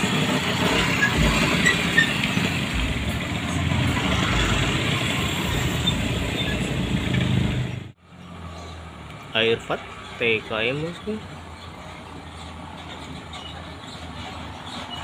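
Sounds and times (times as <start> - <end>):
tyres on road: 0.0 - 15.0.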